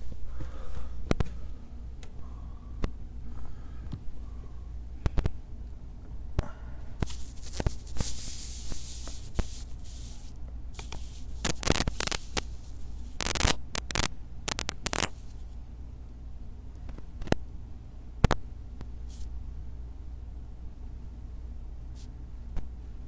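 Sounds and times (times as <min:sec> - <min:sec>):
steady low hum: 0:00.0 - 0:23.0
recorder handling rustling and scraping: 0:07.0 - 0:15.6.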